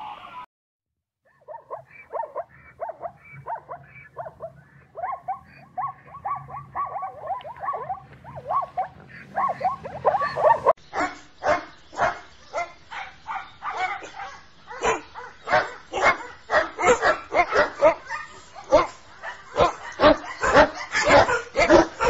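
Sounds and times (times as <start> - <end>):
dog barking: 1.3 - 22.0
zebras yelping calls: 1.7 - 14.2.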